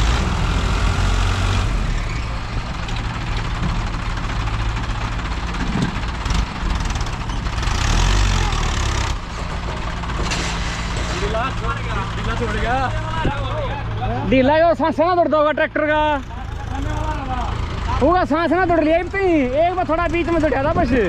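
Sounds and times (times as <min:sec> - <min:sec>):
deep tractor engine drone: 0:00.0 - 0:21.0.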